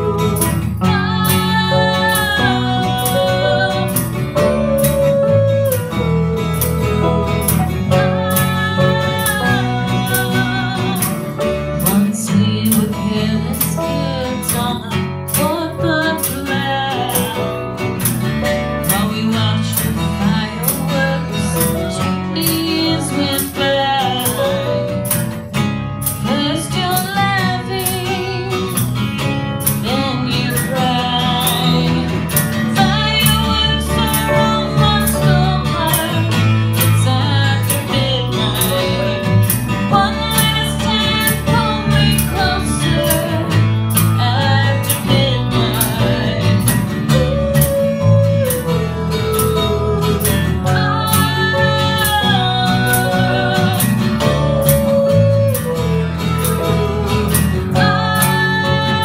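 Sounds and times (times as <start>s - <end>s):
woman singing: 0.0s - 25.4s, 26.0s - 59.0s
electric bass: 0.0s - 59.0s
strummed acoustic guitar: 0.0s - 59.0s
hand drum beat: 27.0s - 59.0s.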